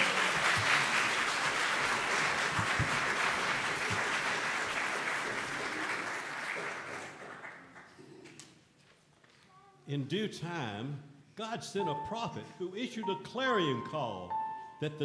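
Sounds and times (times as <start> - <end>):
congregation applauding: 0.0 - 8.4.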